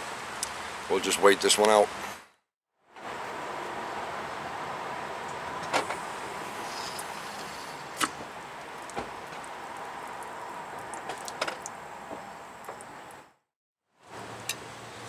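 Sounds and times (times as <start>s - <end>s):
light rain falling: 2.9s - 13.4s.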